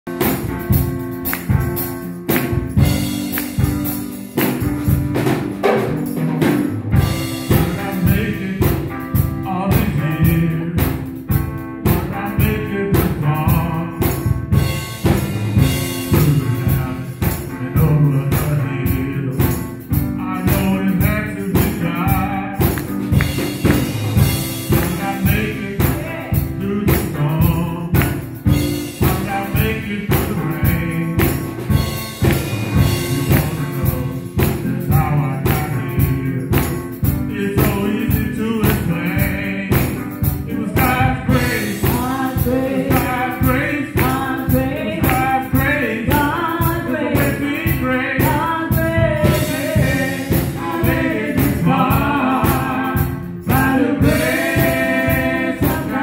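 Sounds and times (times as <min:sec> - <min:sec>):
gospel music with drum beat: 0:00.0 - 0:56.0
tambourine: 0:00.1 - 0:56.0
person singing: 0:07.4 - 0:11.1, 0:11.9 - 0:14.4, 0:16.0 - 0:23.5, 0:24.7 - 0:28.4, 0:29.0 - 0:31.7, 0:32.8 - 0:56.0.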